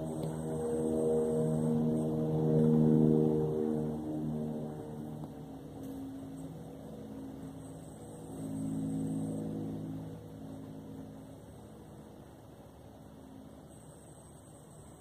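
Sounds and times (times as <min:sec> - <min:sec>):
motor engine droning: 0:00.0 - 0:15.0.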